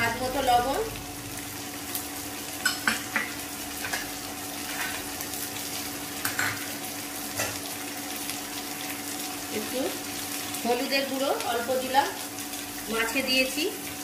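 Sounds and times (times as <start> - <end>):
onion frying in hot oil: 0.0 - 14.0
spatula scraping pan: 4.6 - 5.0.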